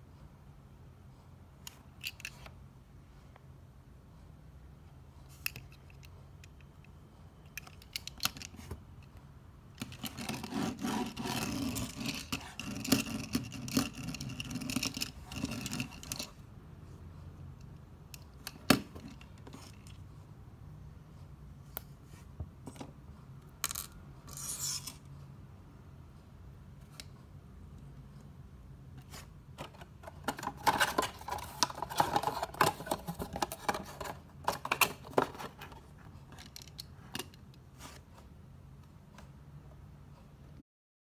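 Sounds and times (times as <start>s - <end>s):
toy car rolling on table: 9.8s - 16.3s.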